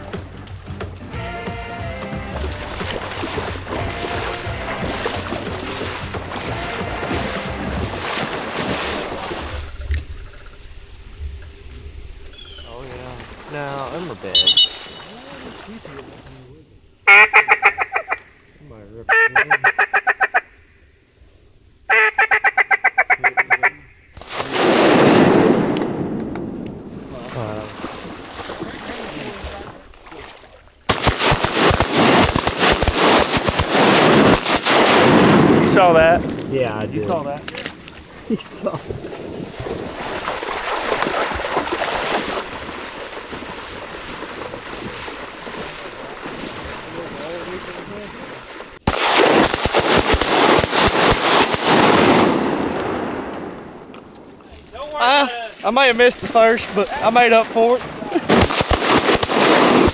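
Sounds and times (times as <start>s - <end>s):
people wading through water: 0.0s - 17.0s, 23.2s - 59.8s
duck call quacking: 1.1s - 8.1s, 14.3s - 15.2s, 17.0s - 18.3s, 19.1s - 20.6s, 21.9s - 23.9s.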